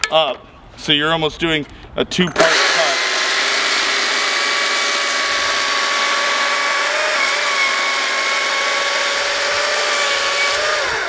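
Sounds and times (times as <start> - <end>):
chain cutting through wood: 2.4 - 11.0
electric chainsaw motor whine: 2.4 - 11.0.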